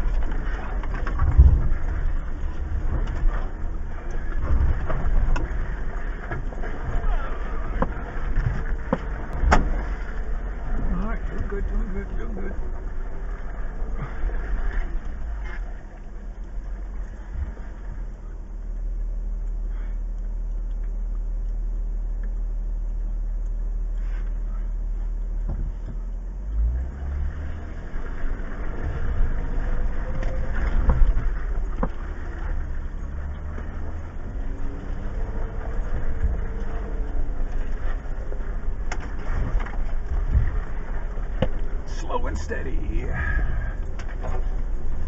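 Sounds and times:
knocks and clunks over rocks: 0.0s - 18.2s, 25.4s - 26.1s, 27.6s - 41.9s, 43.0s - 45.0s
engine revving from inside car: 23.8s - 45.0s.

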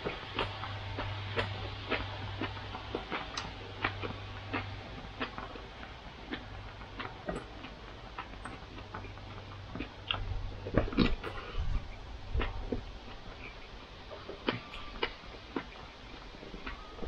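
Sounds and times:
chewing clicks and smacks: 0.0s - 17.0s
low steady hum: 0.0s - 17.0s.

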